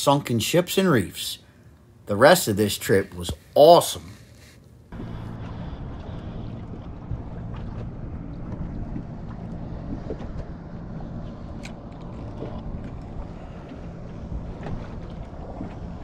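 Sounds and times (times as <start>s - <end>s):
low steady hum: 0.0s - 16.0s
water around boat: 0.0s - 16.0s
wind on microphone: 5.0s - 16.0s.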